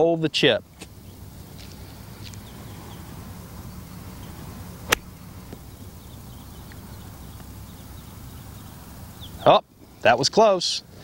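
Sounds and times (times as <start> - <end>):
golf club striking ball: 4.8 - 5.8.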